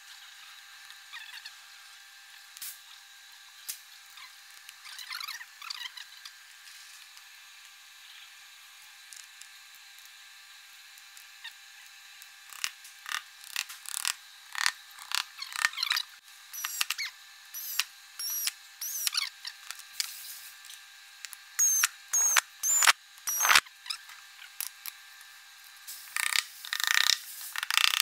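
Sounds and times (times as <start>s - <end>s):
power screwdriver motor whine: 16.6s - 19.2s, 21.6s - 23.6s.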